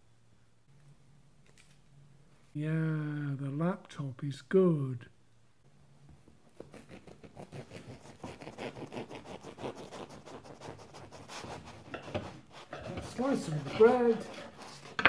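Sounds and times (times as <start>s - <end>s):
bread knife sawing through bread: 6.6s - 15.0s.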